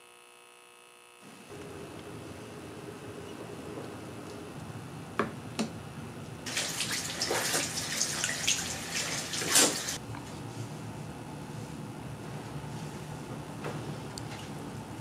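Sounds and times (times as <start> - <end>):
tap water splashing over hands: 6.5 - 10.0.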